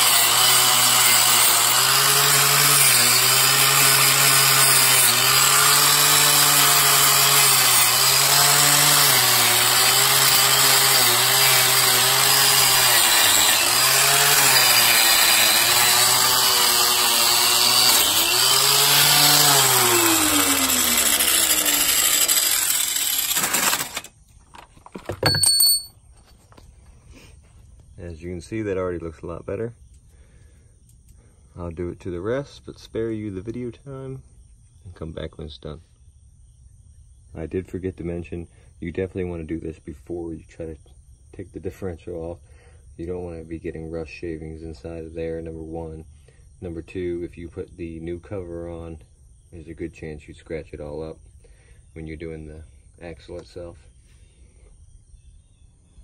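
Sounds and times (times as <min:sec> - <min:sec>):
angle grinder grinding metal: 0:00.0 - 0:25.9
grinder winding down: 0:00.0 - 0:25.9.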